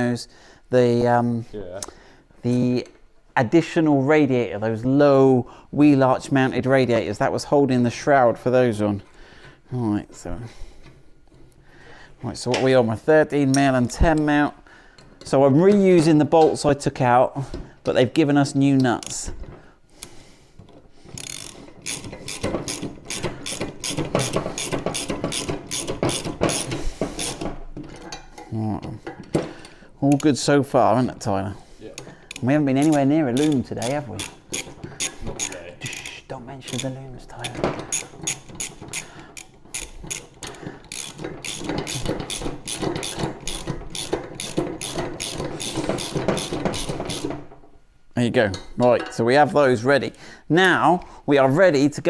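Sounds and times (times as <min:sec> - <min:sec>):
ratchet wrench clicking: 0:21.2 - 0:27.4, 0:32.0 - 0:47.3.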